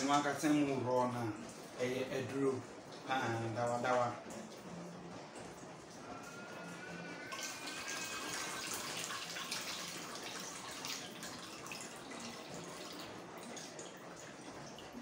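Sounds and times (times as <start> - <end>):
liquid pouring into metal pot: 7.2 - 15.0.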